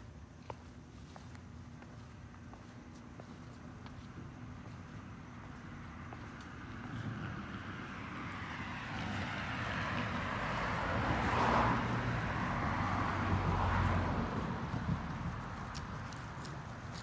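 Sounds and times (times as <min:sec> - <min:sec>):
car passing: 0:04.2 - 0:17.0.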